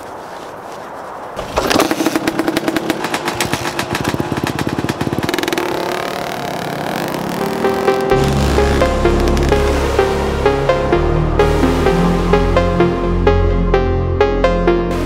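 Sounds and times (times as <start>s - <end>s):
dirt bike engine: 1.4s - 10.7s
music: 7.4s - 15.0s.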